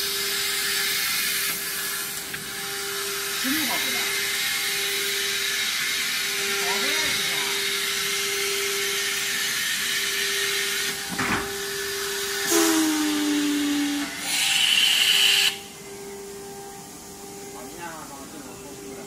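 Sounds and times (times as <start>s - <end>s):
falling motor whine: 0.0s - 19.0s
machine hiss and hum: 0.0s - 19.0s
burst of air hiss: 12.4s - 15.6s.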